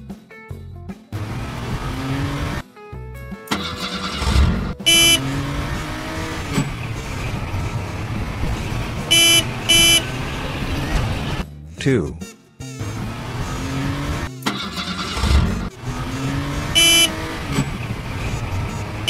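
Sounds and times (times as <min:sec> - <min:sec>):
cartoon car engine revving: 0:01.2 - 0:02.6, 0:03.5 - 0:11.4, 0:12.7 - 0:19.0
car horn honks: 0:04.8 - 0:06.1, 0:09.0 - 0:10.4, 0:16.4 - 0:17.6.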